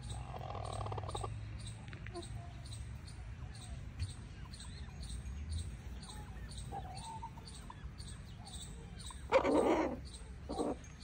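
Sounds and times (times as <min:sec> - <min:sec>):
chickens clucking: 0:00.0 - 0:11.0
chicks peeping: 0:00.0 - 0:11.0
harsh chicken call: 0:09.3 - 0:10.8.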